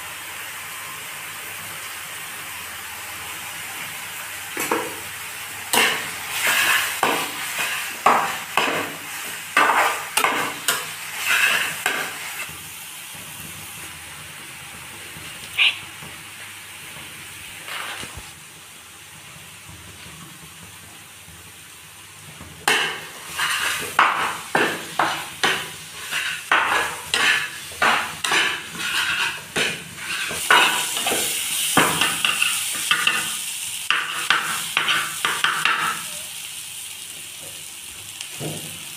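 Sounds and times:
steady sizzle: 0:00.0 - 0:38.9
spatula scraping a frying pan: 0:05.7 - 0:12.5, 0:22.7 - 0:36.0.

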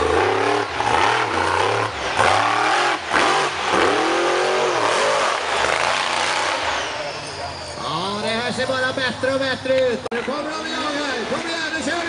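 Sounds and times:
truck engine revving: 0:00.0 - 0:09.2.

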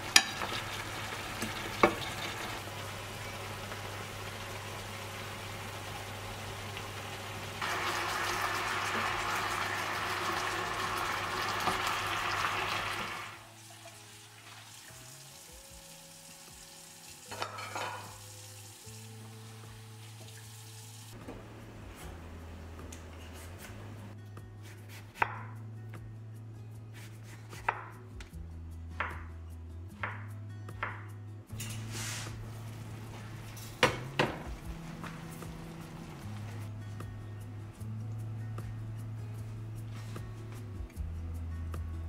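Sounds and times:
soft background music: 0:00.0 - 0:05.0, 0:07.8 - 0:42.0
frying pan sizzling: 0:00.0 - 0:22.3, 0:31.7 - 0:36.6.

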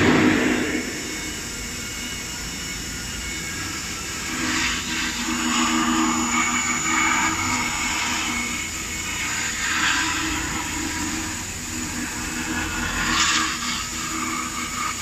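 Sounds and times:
router spindle high whine: 0:00.0 - 0:15.0
bit carving foam: 0:03.2 - 0:15.0.

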